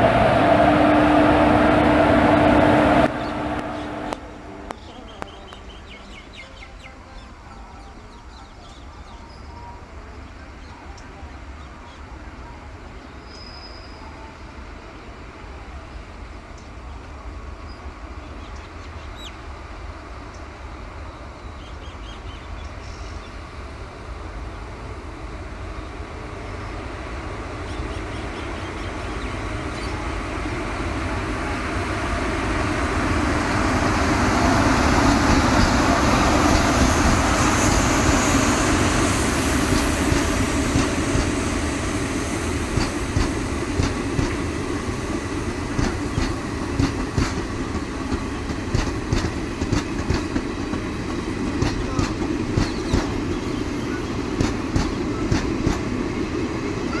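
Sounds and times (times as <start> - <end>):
locomotive and wheels rumbling: 0.0 - 57.0
coach wheels clicking over rail joints: 42.7 - 44.4, 45.6 - 53.4, 54.2 - 56.0.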